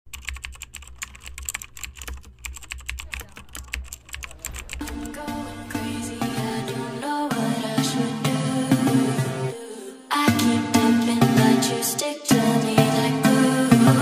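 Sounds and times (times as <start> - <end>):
keyboard typing clicks: 0.1 - 5.9
low hum: 2.3 - 8.4.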